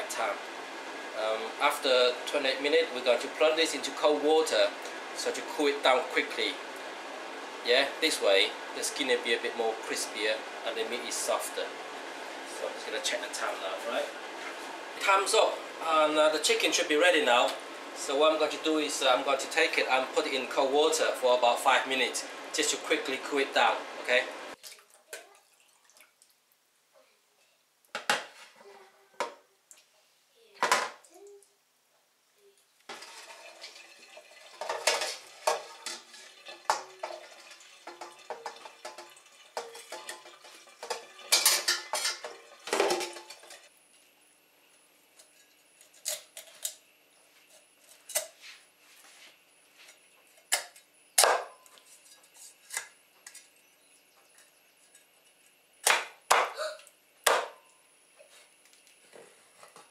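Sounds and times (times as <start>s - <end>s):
metal spoon clanking on pot: 34.6s - 43.7s.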